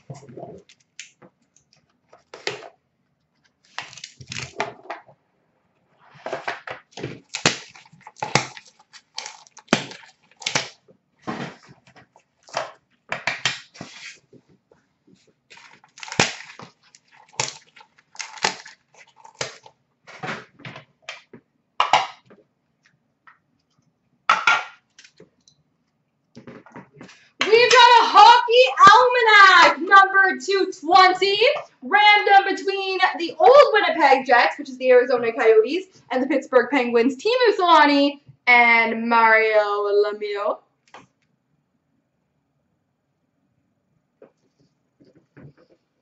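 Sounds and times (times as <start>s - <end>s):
packaging crinkling and rustling: 3.4s - 4.8s, 6.9s - 14.3s, 15.5s - 20.6s.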